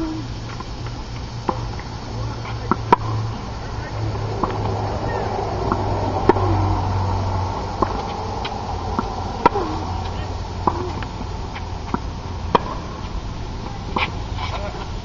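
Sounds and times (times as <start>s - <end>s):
low background hum: 0.0s - 15.0s
tennis ball pops: 7.8s - 11.1s.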